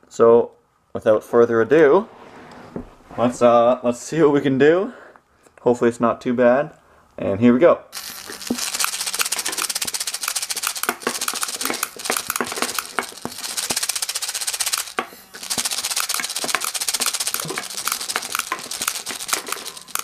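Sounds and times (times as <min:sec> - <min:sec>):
air feed hiss and motor spinning: 0:08.0 - 0:20.0.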